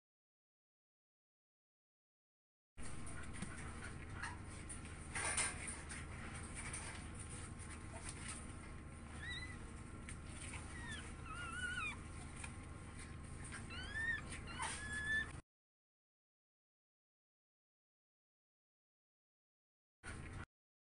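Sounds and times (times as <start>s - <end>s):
steady low hum: 2.8s - 15.4s
puppies squeaking: 9.1s - 9.7s, 10.4s - 12.5s, 13.4s - 15.4s.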